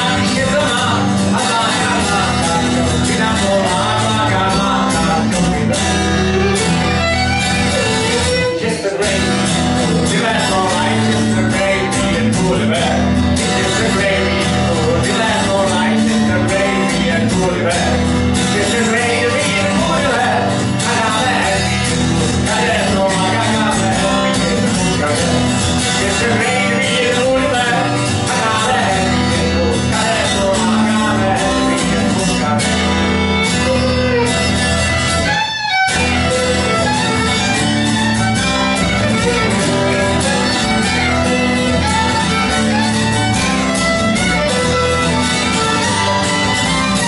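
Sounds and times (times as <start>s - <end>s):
acoustic guitar: 0.0s - 47.0s
fiddle: 0.0s - 47.0s.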